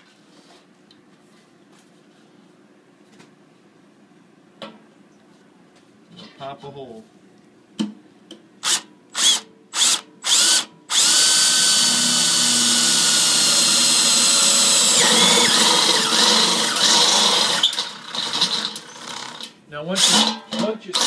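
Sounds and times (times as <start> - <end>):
cordless drill drilling into steel: 8.6 - 17.9.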